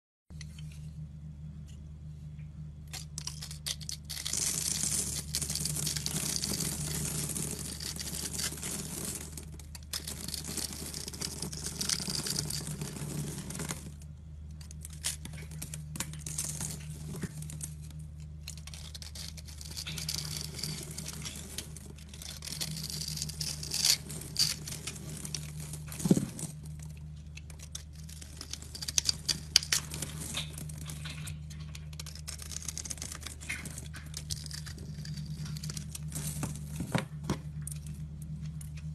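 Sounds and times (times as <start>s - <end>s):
knife scraping soap: 2.9s - 9.1s, 18.2s - 25.5s, 31.2s - 35.9s.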